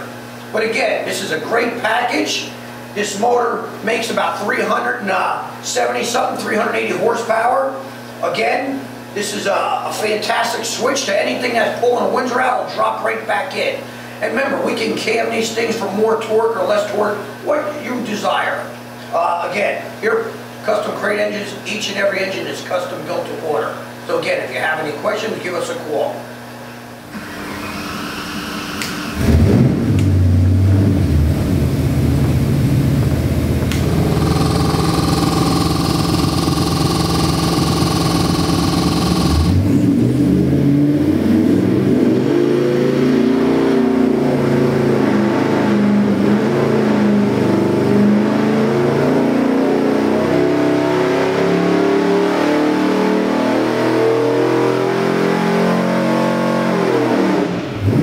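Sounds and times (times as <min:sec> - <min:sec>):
engine running on dyno: 0:27.1 - 0:58.0.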